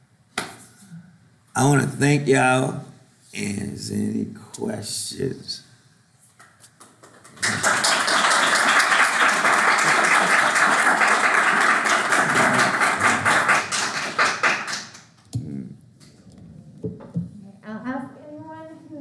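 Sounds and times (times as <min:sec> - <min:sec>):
audience applause: 0:07.2 - 0:15.0.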